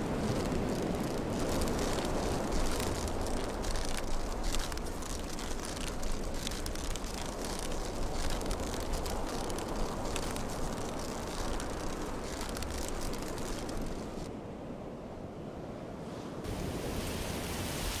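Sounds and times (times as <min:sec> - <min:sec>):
wind buffeting microphone: 0:00.0 - 0:14.3.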